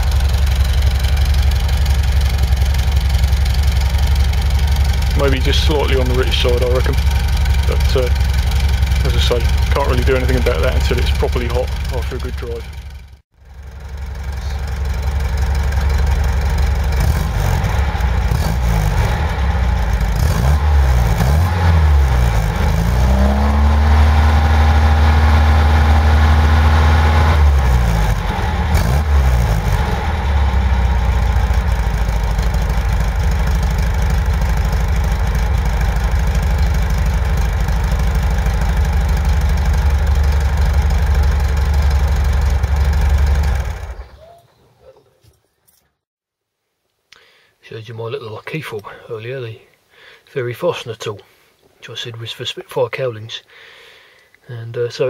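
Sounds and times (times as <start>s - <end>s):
car engine idling and revving: 0.0s - 44.2s.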